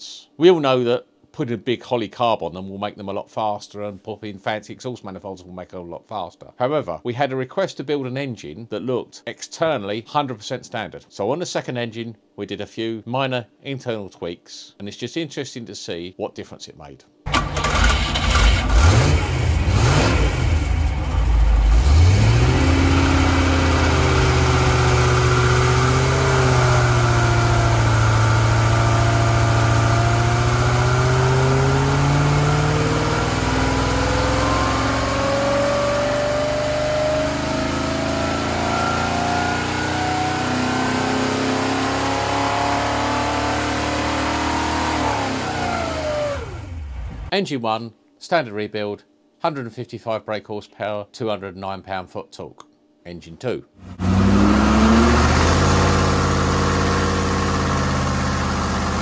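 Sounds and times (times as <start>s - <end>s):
car engine revving on dyno: 17.3s - 47.3s, 53.8s - 59.0s.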